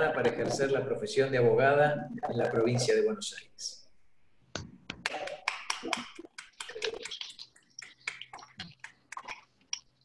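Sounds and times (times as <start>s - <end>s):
hand clapping: 4.6s - 9.3s.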